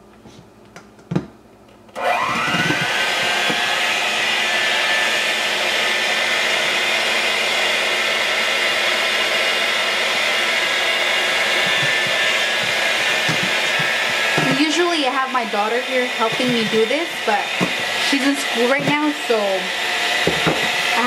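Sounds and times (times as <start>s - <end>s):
electric hand mixer whirring: 1.9s - 21.0s.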